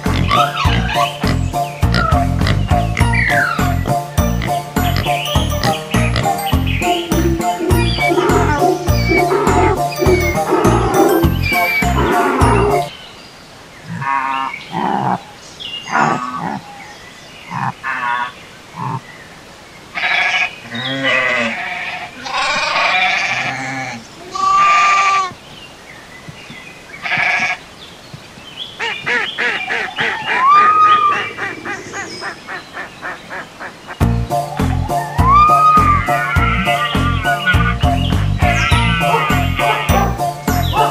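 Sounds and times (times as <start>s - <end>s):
animal calls: 0.0s - 12.9s, 13.8s - 16.9s, 17.5s - 19.0s, 20.0s - 25.4s, 27.0s - 27.6s, 28.8s - 40.9s
sheep bleating: 20.0s - 25.3s, 27.0s - 27.6s, 38.4s - 40.2s.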